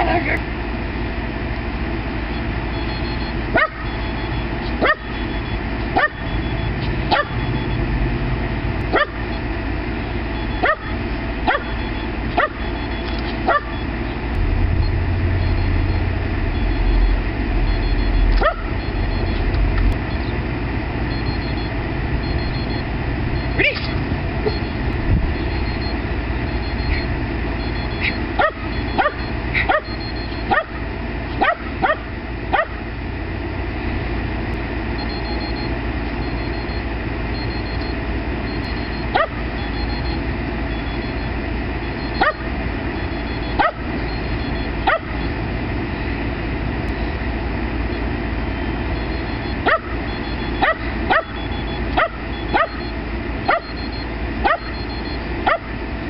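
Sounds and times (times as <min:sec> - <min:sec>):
dog barking in sharp yips: 0:06.0 - 0:06.2, 0:09.0 - 0:09.2, 0:31.4 - 0:32.8, 0:39.2 - 0:39.4, 0:42.2 - 0:42.4, 0:50.6 - 0:51.4, 0:52.0 - 0:52.8, 0:55.5 - 0:55.7.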